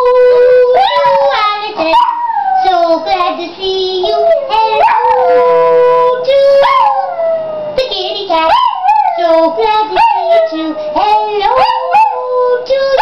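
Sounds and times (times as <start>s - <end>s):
woman howling: 0.1s - 1.4s, 4.1s - 7.6s, 8.5s - 12.6s
dog howling: 0.3s - 2.9s, 4.1s - 7.8s, 8.4s - 13.0s.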